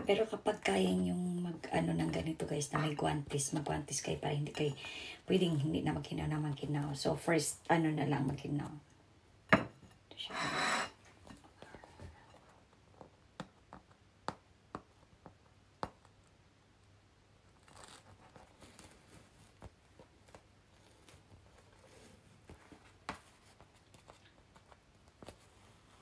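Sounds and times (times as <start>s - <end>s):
faint clicks and taps: 11.2s - 16.3s.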